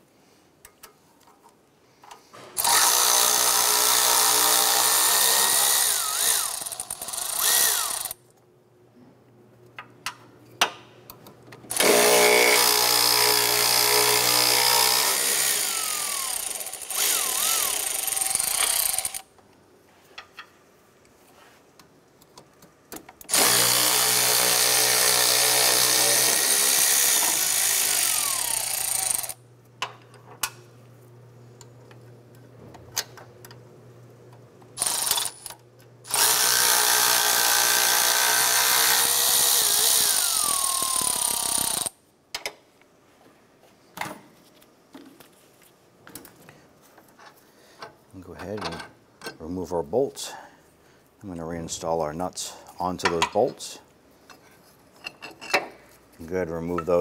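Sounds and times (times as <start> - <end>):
power tool motor running: 2.6 - 8.2, 11.7 - 19.2, 23.3 - 29.4, 34.8 - 35.5, 36.1 - 41.9.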